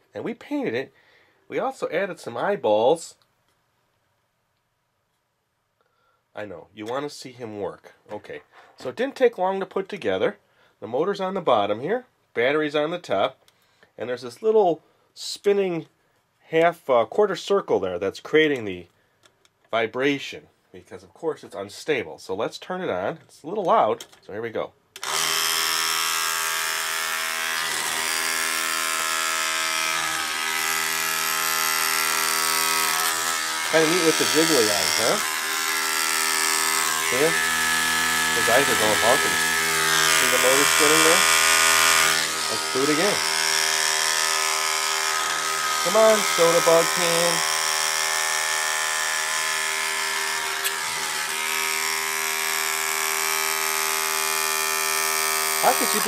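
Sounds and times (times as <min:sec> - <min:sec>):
small electric motor buzzing: 0:25.0 - 0:56.0.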